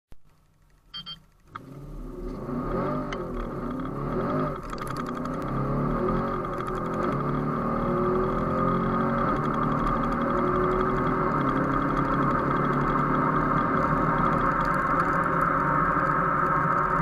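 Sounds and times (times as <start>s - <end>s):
short beeps: 0.9s - 1.3s
car engine accelerating hard: 1.6s - 17.0s.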